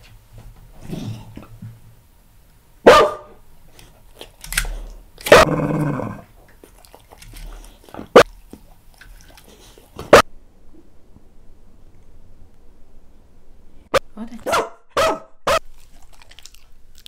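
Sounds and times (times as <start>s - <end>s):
dog barking: 2.8s - 3.4s, 14.4s - 15.6s.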